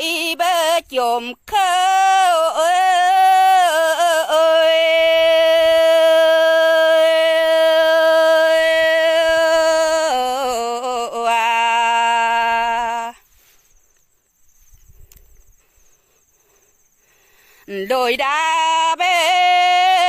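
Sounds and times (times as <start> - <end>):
woman singing unaccompanied: 0.0 - 13.4, 17.6 - 20.0.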